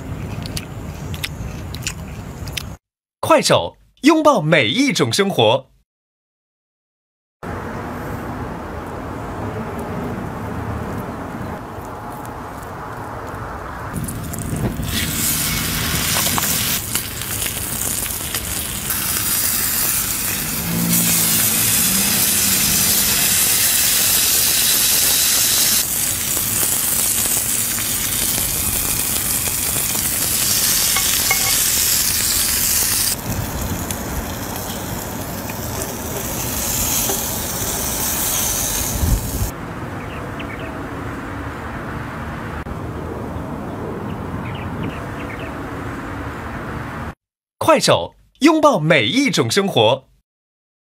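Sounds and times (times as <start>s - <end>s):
steak sizzling in a pan: 14.8s - 39.5s.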